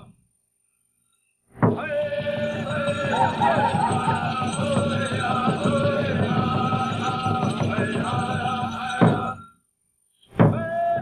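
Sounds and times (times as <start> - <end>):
fast beat on large drum: 1.6 - 9.4
men singing in wavering voices: 1.6 - 9.5, 10.4 - 11.0.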